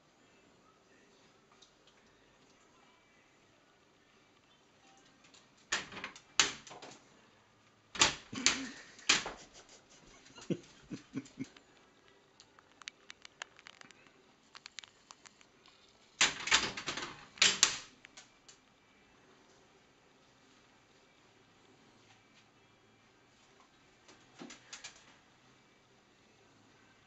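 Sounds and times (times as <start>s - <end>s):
claws ticking on tiled floor: 10.4s - 15.6s.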